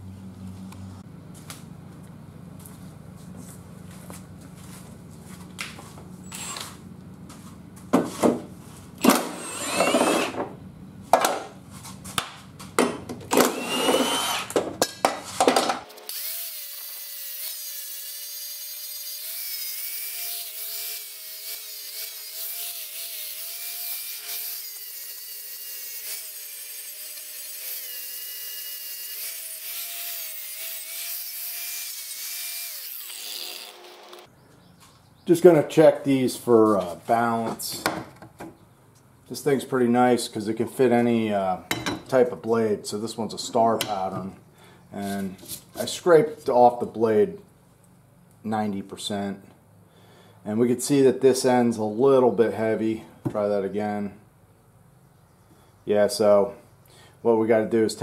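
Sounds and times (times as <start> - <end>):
angle grinder sharpening blade: 15.9 - 34.3.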